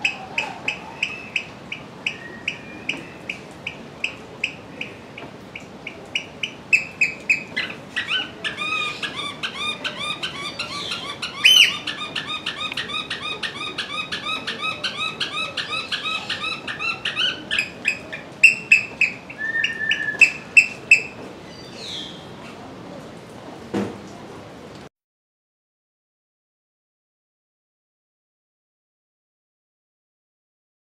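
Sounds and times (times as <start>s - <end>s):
bird piping shrilly: 6.4s - 21.1s.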